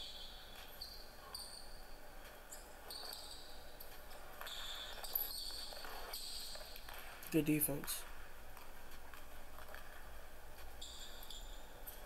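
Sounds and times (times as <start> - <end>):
sneaker squeaks: 0.0 - 7.0, 10.8 - 12.0.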